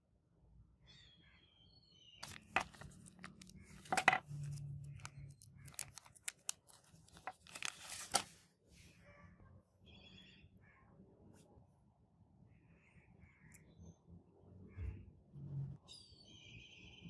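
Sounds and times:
plastic bag crinkling: 2.2 - 8.4.

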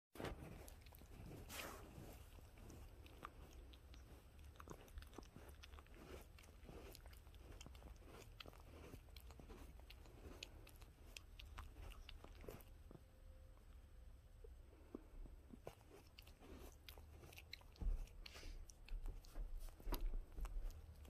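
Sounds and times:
dog licking cushion: 0.2 - 13.0, 15.4 - 21.0.

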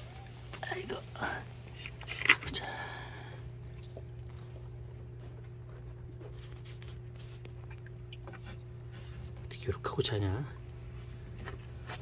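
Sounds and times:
steady low hum: 0.0 - 12.0
puppies nursing clicks and rustles: 1.6 - 12.0.

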